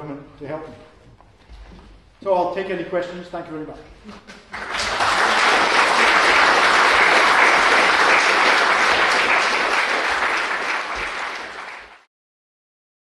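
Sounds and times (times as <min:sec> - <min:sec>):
audience applauding: 0:04.4 - 0:12.1.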